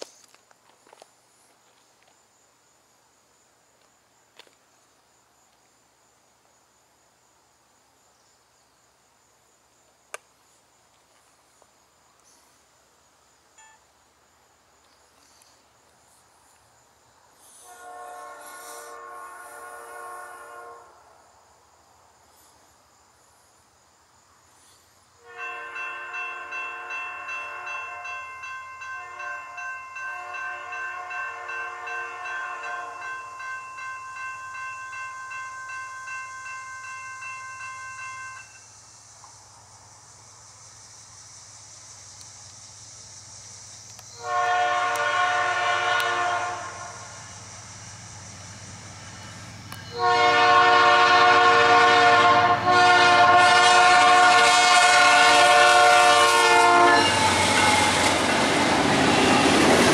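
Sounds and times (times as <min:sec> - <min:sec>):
high insect buzz: 0:08.0 - 0:34.0, 0:38.4 - 0:59.8
locomotive air horn blasts: 0:17.6 - 0:21.0, 0:25.2 - 0:28.3, 0:28.9 - 0:33.1, 0:44.2 - 0:47.2, 0:49.9 - 0:58.2.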